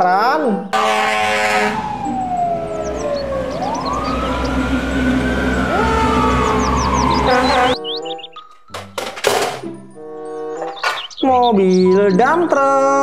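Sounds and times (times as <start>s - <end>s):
fire engine sirens wailing: 0.8s - 8.3s
truck engines rumbling: 0.8s - 13.0s.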